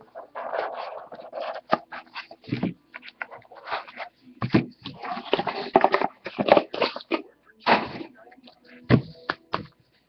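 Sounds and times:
cards scraping and rustling: 0:00.1 - 0:07.2.

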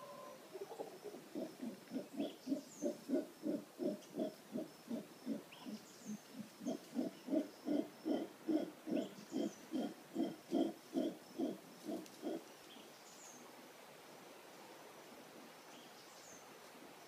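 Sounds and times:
faint bird chirps: 0:00.0 - 0:13.4
howler monkey grunting: 0:01.3 - 0:05.8, 0:06.6 - 0:12.4.

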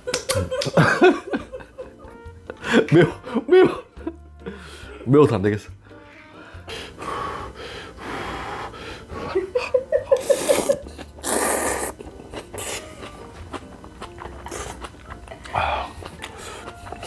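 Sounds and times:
man gasping breaths: 0:06.5 - 0:09.3
slurping noodles: 0:10.2 - 0:17.0.

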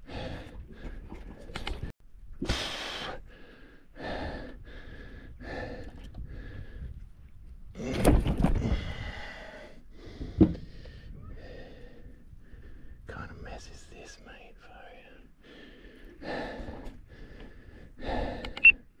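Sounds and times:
man breathing hard: 0:00.0 - 0:01.3, 0:02.4 - 0:07.1, 0:08.5 - 0:13.0, 0:15.0 - 0:19.0.

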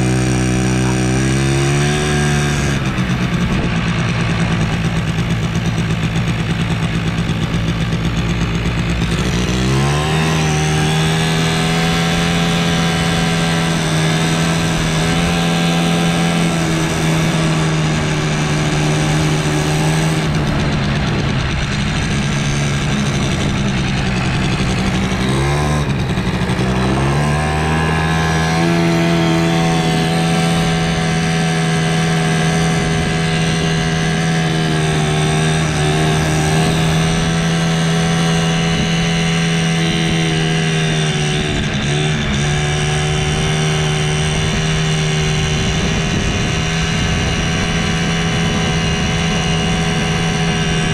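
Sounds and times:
two-stroke quad engine: 0:00.0 - 0:50.9.

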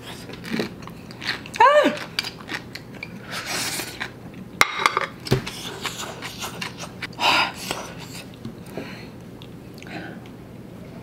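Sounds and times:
chewing and mouth clicks: 0:00.0 - 0:03.2.

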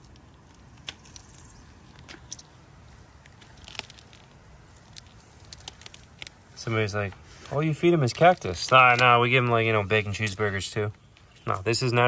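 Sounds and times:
tortoise chewing cactus: 0:00.0 - 0:12.0.

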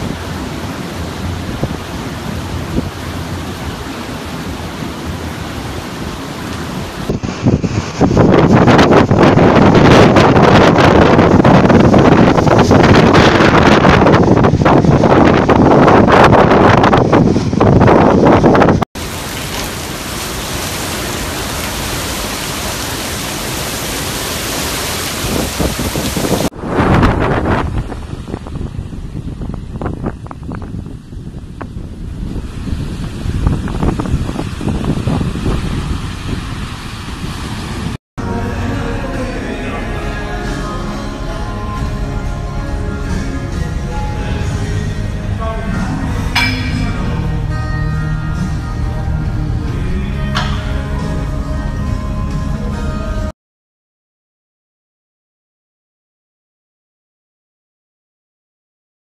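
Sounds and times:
wind buffeting microphone: 0:00.0 - 0:38.0
strong wind: 0:00.0 - 0:40.3, 0:40.9 - 0:53.3
heavy surf: 0:00.0 - 0:53.3.

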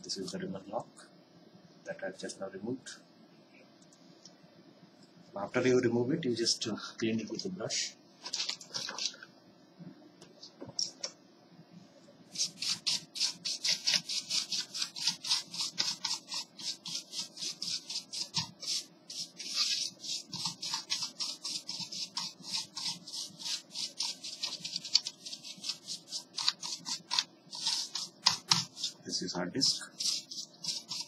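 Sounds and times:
brush scrubbing laptop casing: 0:12.3 - 0:31.0.

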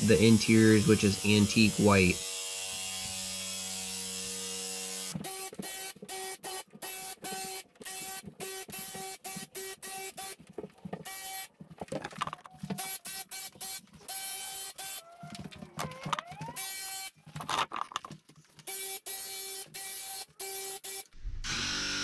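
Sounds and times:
electric paint sprayer buzzing: 0:00.0 - 0:10.4, 0:12.8 - 0:15.4, 0:18.6 - 0:22.0.

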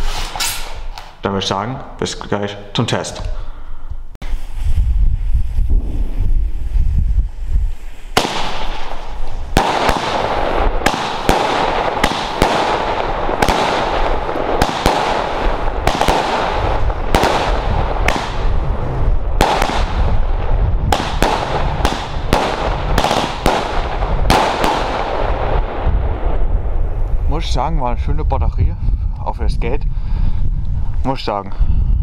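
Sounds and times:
firework hiss: 0:07.3 - 0:20.0
firework bangs: 0:08.0 - 0:26.7.

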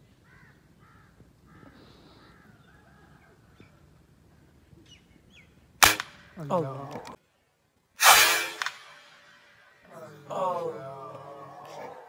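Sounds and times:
birds calling: 0:00.1 - 0:07.5
air rifle shot: 0:05.8 - 0:06.4, 0:08.0 - 0:09.4.

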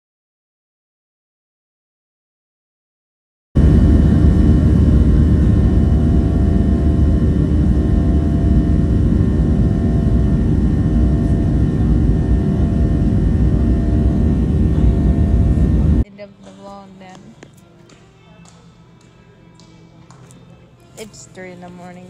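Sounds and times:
aircraft engine rumble: 0:03.6 - 0:16.1
steady tones: 0:03.6 - 0:18.2.

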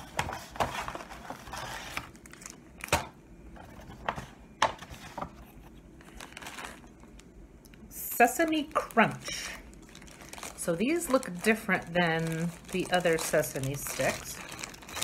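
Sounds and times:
plastic bag crinkling: 0:00.8 - 0:03.0, 0:06.0 - 0:15.0.

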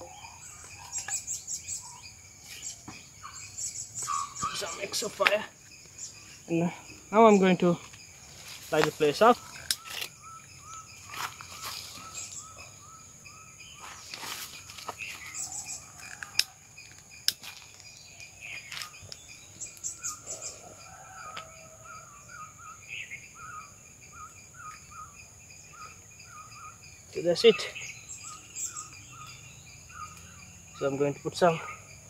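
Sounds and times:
bird chirping calls: 0:00.0 - 0:32.0
high insect drone: 0:00.0 - 0:32.0
sharp clicks: 0:09.5 - 0:10.2.

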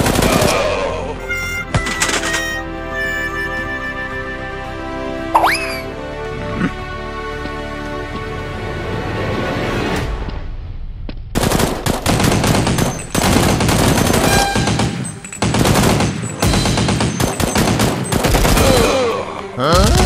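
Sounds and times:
automatic gunfire bursts: 0:11.4 - 0:18.8.

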